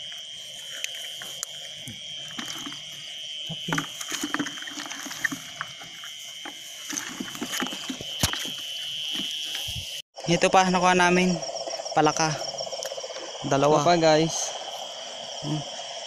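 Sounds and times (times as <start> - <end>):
insect chorus trilling: 0.0 - 16.0
handling noise on microphone: 0.6 - 10.0.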